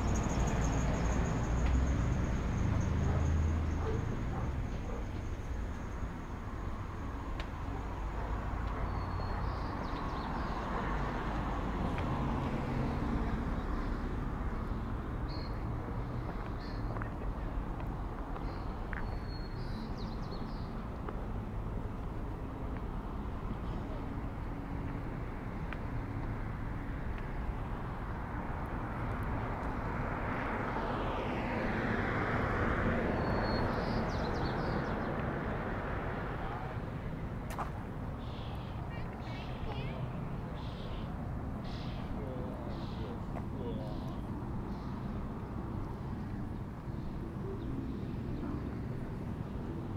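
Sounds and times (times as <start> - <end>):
vehicle passing by: 8.4 - 17.4.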